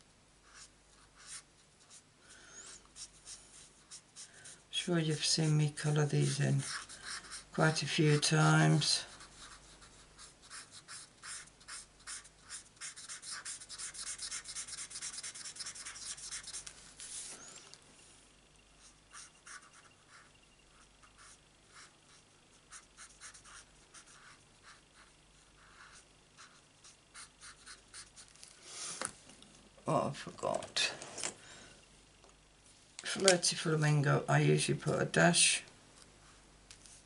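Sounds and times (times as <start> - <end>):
marker rasping on card: 6.0 - 7.6, 9.2 - 17.4, 18.8 - 28.3.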